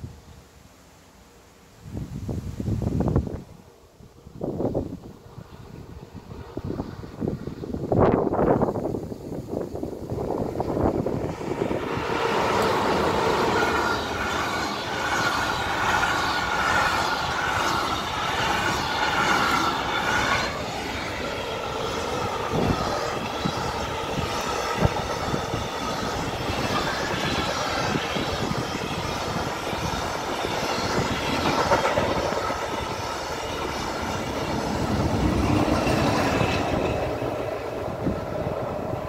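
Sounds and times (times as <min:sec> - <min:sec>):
freight train rumbling on rails: 0:00.0 - 0:39.0
high wheel whine: 0:06.6 - 0:39.0
wheels clacking over rail joints: 0:10.6 - 0:39.0.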